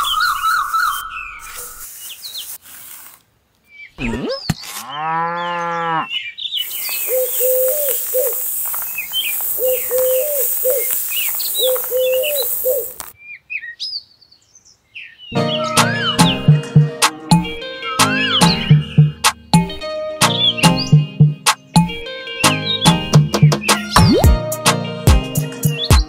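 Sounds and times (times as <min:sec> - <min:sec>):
birds chirping: 0:00.0 - 0:02.6, 0:03.6 - 0:24.4
cow mooing: 0:04.8 - 0:06.1
short chirping calls: 0:06.1 - 0:14.1
steady high hiss: 0:06.6 - 0:13.2.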